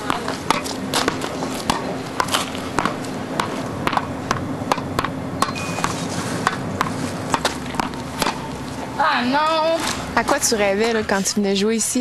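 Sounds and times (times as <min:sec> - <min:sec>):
sharp knocks: 0:00.0 - 0:08.4
steady background hum: 0:00.0 - 0:12.0.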